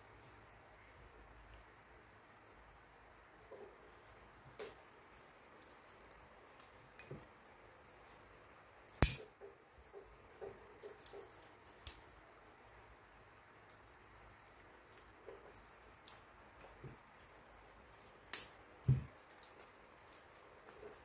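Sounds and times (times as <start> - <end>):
sharp loud click: 9.0 - 9.3.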